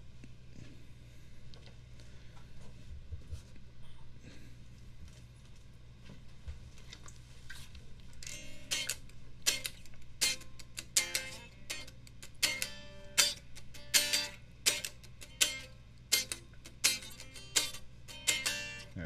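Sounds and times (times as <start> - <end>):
guitar strummed in short chords: 8.3 - 19.0.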